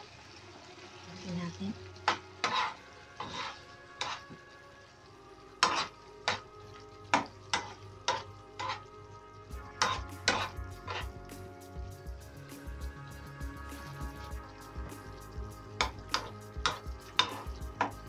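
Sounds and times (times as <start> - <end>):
metal spoon scraping frying pan: 2.0 - 4.4, 5.6 - 6.4, 7.1 - 9.0, 9.6 - 11.4, 15.8 - 18.0.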